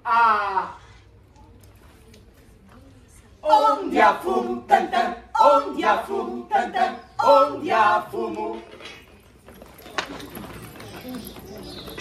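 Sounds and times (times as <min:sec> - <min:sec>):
a cappella singing voices: 0:03.4 - 0:08.9.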